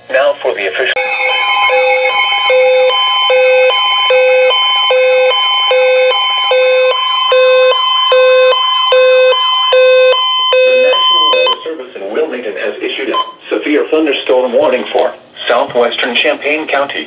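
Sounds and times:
loud repeating beep: 1.0 - 11.6
weather radio alarm tones: 1.0 - 11.7.

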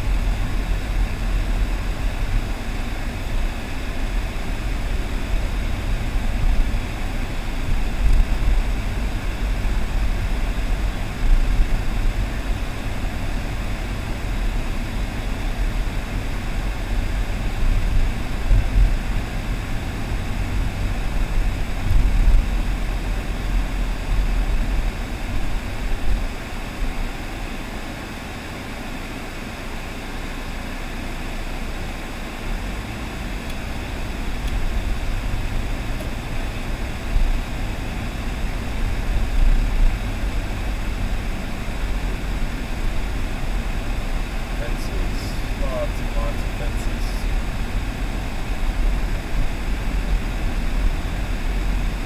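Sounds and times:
car engine and tyre rumble: 0.0 - 52.0.

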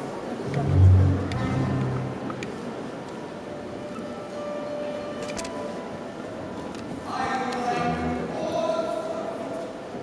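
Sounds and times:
quiet music with held notes: 0.4 - 6.1.

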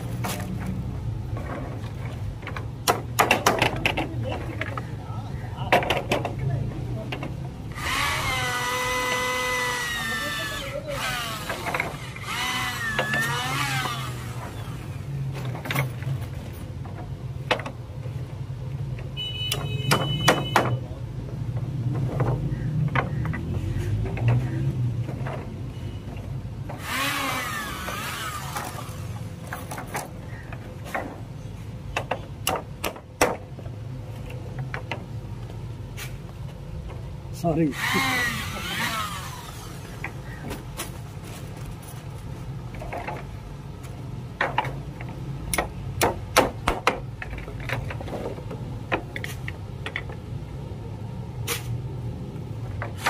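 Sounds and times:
wooden rungs knocking and clattering: 0.2 - 4.9, 5.6 - 6.4, 21.4 - 25.6, 34.5 - 35.2, 44.3 - 50.3
electric drill running: 37.8 - 39.8.

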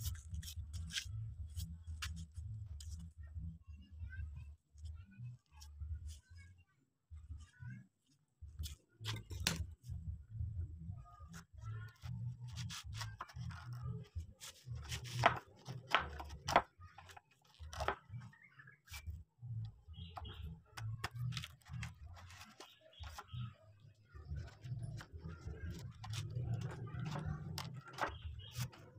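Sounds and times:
chisel scraping and cracking wood: 14.8 - 18.2, 24.4 - 28.9.

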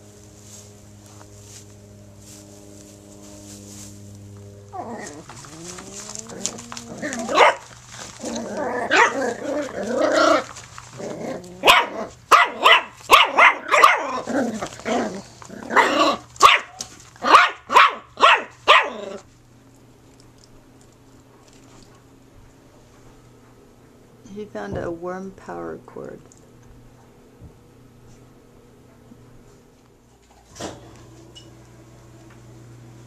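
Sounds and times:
puppy whining and growling: 4.7 - 12.8, 13.4 - 16.4, 18.7 - 19.3
puppy barking: 6.4 - 7.7, 8.4 - 10.5, 11.6 - 19.2.

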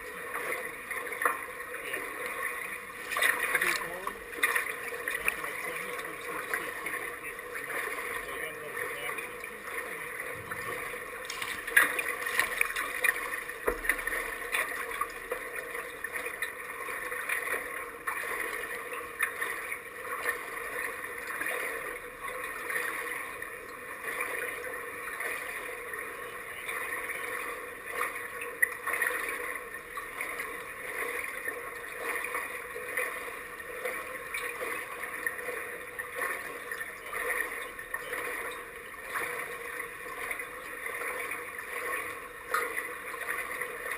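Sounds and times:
pool water lapping and sloshing: 0.0 - 43.9
small water splashes: 0.0 - 43.9
steady background hum: 0.0 - 43.9.

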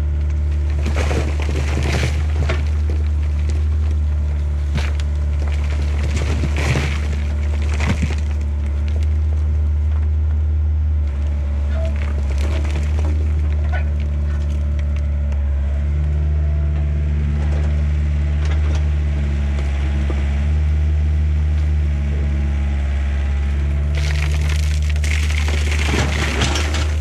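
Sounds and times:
excavator diesel engine running: 0.0 - 27.0
dirt and stones clattering on pipe: 0.6 - 9.3, 11.7 - 15.1, 23.9 - 27.0.

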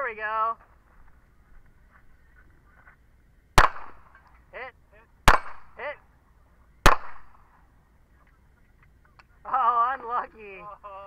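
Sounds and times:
handgun shots: 3.6 - 4.1, 5.3 - 5.8, 6.8 - 7.4.

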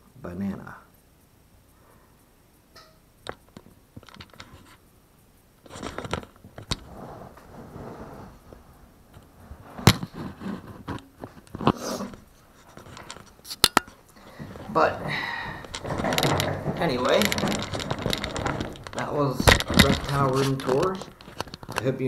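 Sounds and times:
scraping: 5.6 - 22.0
plastic tub sliding into shelf: 14.3 - 20.9.

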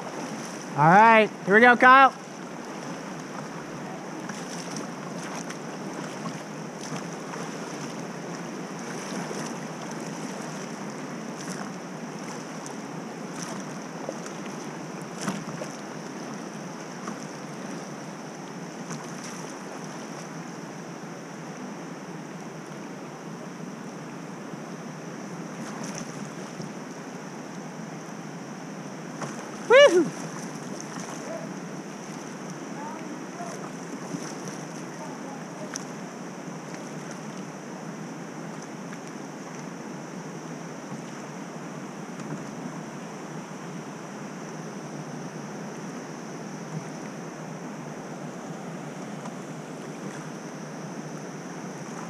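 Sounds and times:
river water rushing: 0.0 - 52.0
light splashes and knocks: 4.2 - 10.7, 11.4 - 16.4, 18.8 - 20.3, 29.2 - 31.5, 33.0 - 34.7.

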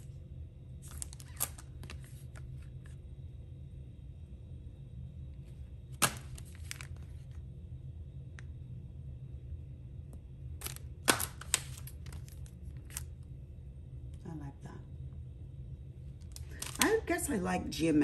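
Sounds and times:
steady low hum: 0.0 - 18.0
plastic packaging crackling: 0.8 - 2.6, 6.0 - 7.3, 10.6 - 13.1, 16.2 - 17.0.

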